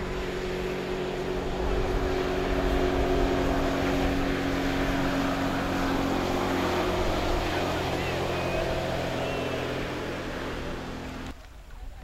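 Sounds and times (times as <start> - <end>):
water rushing and spraying: 0.0 - 11.3
jet ski engine drone: 0.0 - 11.4.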